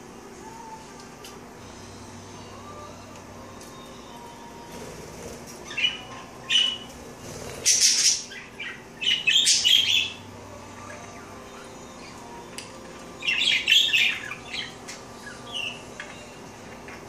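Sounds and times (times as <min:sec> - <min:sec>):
budgerigars chirping: 0:07.5 - 0:10.2.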